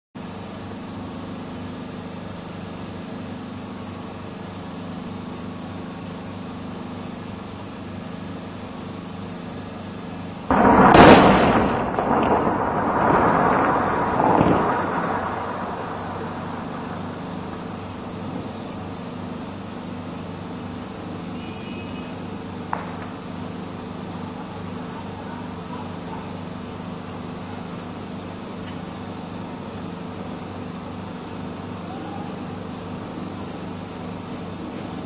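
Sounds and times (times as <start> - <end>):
low background hum: 0.2 - 35.0
loud explosive blast: 10.5 - 19.8.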